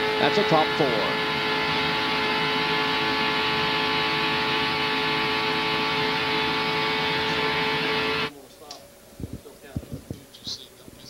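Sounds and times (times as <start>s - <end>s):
race car engines droning: 0.0s - 8.3s.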